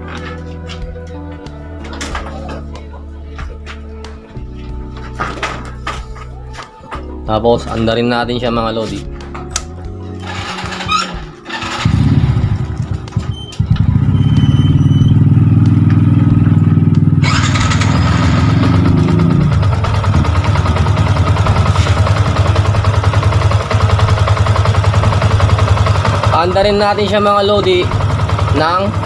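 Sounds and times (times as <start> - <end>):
motorcycle engine starting and idling: 10.2 - 29.0.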